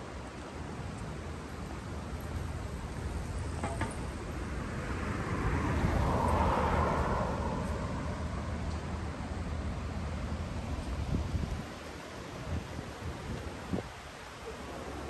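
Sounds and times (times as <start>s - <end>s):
city traffic rumble: 0.0s - 15.0s
vehicle passing close: 4.2s - 8.6s.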